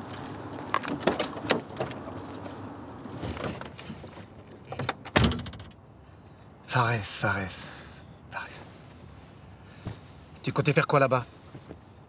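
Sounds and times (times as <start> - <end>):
footsteps: 8.8 - 10.4.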